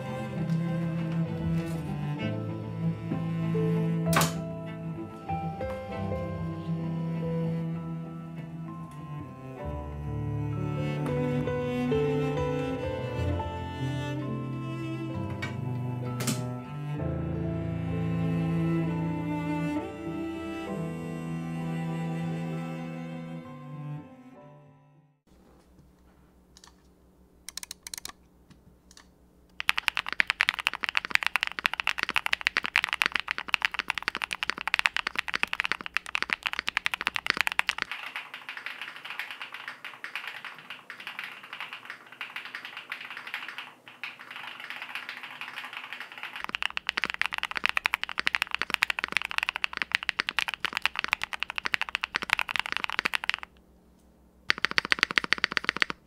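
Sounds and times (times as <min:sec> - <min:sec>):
mechanical keyboard typing: 0:27.5 - 0:28.2, 0:29.6 - 0:53.6, 0:54.5 - 0:56.0.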